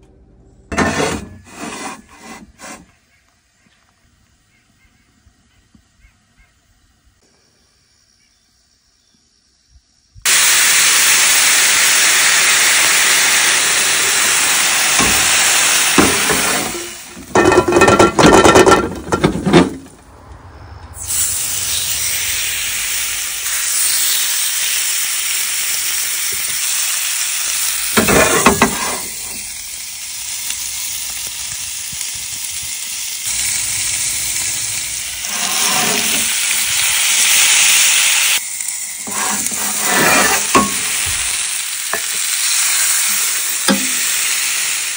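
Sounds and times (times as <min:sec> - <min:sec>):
steaks sizzling in grill pan: 0:10.3 - 0:17.8, 0:21.0 - 0:44.9.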